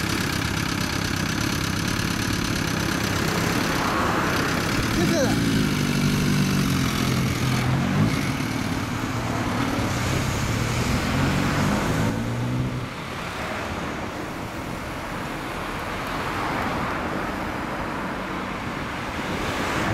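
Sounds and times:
motorcycle engine pulling away: 0.0s - 12.8s
road traffic passing cars: 0.0s - 19.9s.

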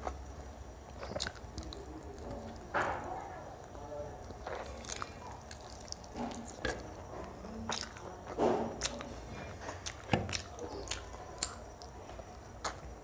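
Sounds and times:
person chewing: 0.0s - 13.0s.

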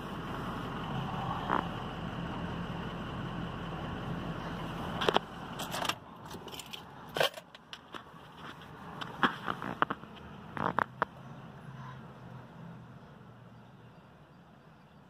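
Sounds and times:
truck engine idling: 0.0s - 15.0s
clicks and rattles in cab: 5.0s - 11.2s.

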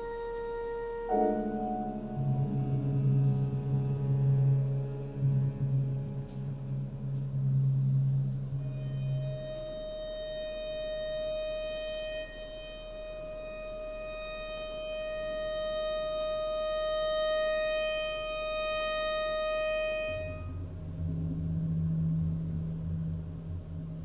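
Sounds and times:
low notes: 0.0s - 24.0s
violin long high bowed note: 0.0s - 24.0s.

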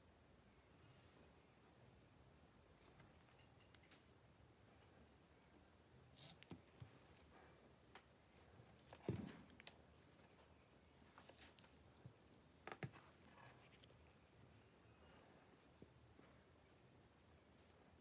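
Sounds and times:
soft thump: 9.0s - 9.5s.

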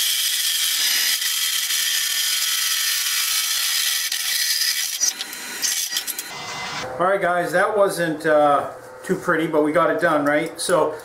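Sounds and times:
hole saw cutting steel pipe: 0.0s - 6.2s.

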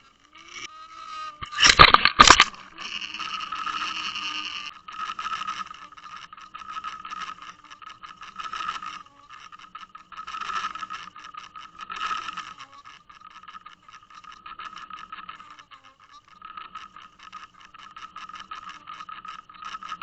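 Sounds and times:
steady wavering hum: 0.0s - 20.0s
rattling against camera housing: 1.4s - 3.8s.

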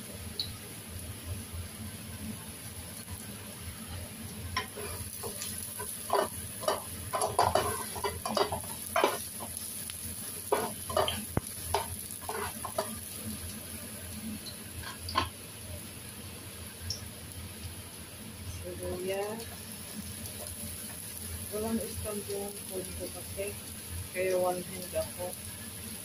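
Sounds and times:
garlic sizzling in oil: 0.0s - 26.0s
spatula scraping frying pan: 4.6s - 9.7s, 10.4s - 13.2s, 14.8s - 15.3s.

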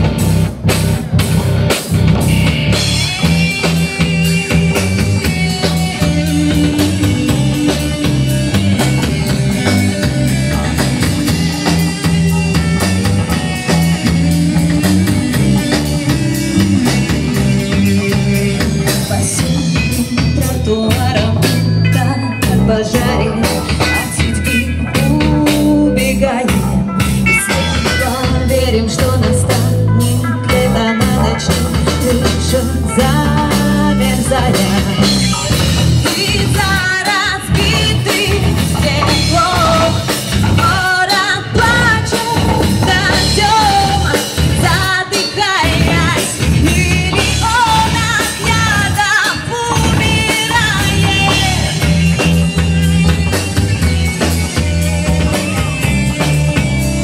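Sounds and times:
bass guitar: 0.0s - 57.0s
drum kit: 0.0s - 57.0s
electric guitar: 0.0s - 57.0s
woman singing: 14.0s - 51.9s.

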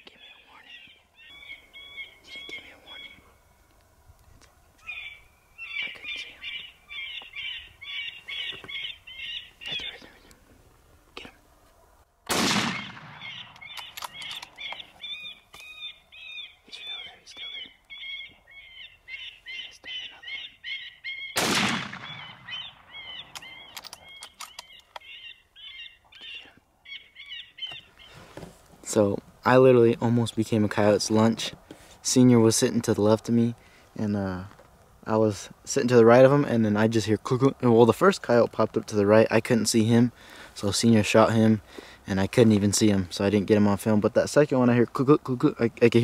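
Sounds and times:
high chirping calls: 0.0s - 3.7s, 4.7s - 10.4s, 12.8s - 21.4s, 22.0s - 28.2s
rifle shot: 12.3s - 14.4s, 21.4s - 23.6s.

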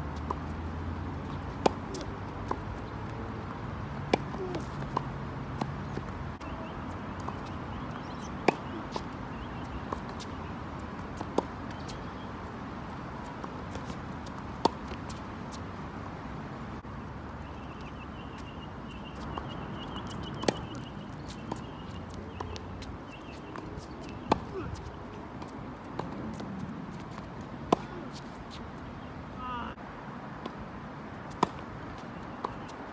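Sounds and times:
racket striking tennis ball: 1.2s - 2.7s, 4.1s - 6.1s, 8.2s - 10.3s, 19.2s - 24.9s, 27.1s - 28.4s.

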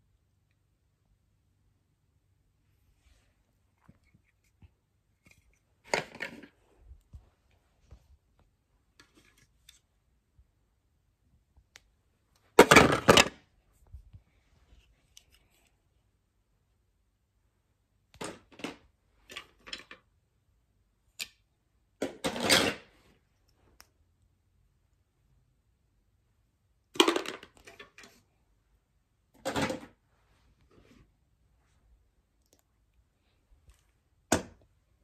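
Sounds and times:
plastic toy bricks clattering: 27.0s - 28.2s.

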